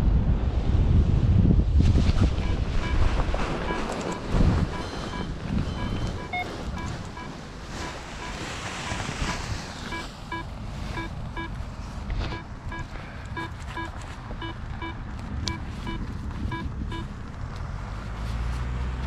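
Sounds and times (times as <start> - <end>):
wind buffeting microphone: 0.0 - 17.8
variometer beeping: 2.4 - 11.6, 12.2 - 17.2.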